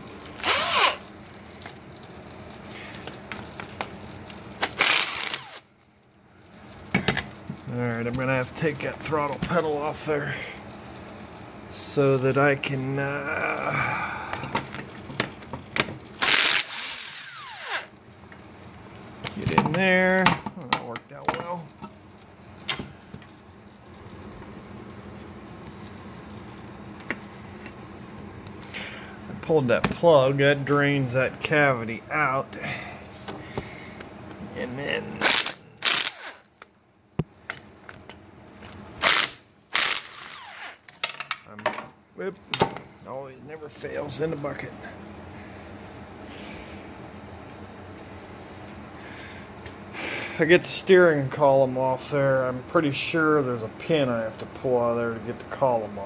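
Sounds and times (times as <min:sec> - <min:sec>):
power tool whirring: 0:00.2 - 0:01.1, 0:04.6 - 0:05.7, 0:16.2 - 0:17.9, 0:35.2 - 0:36.5, 0:39.0 - 0:40.8.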